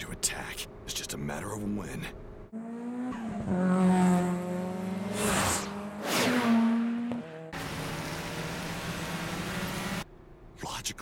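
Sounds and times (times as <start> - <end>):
racing car engine at high revs: 2.5 - 10.0.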